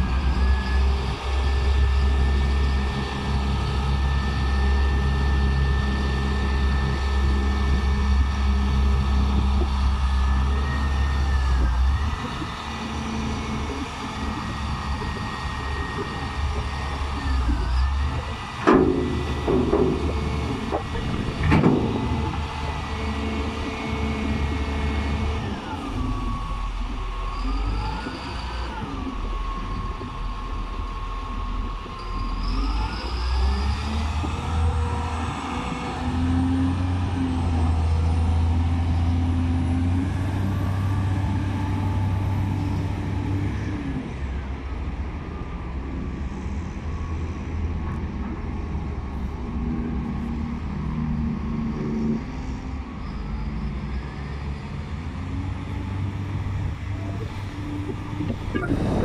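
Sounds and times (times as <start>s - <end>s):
hydraulic whine: 0.0s - 59.0s
wheel loader diesel engine revving: 32.4s - 44.2s.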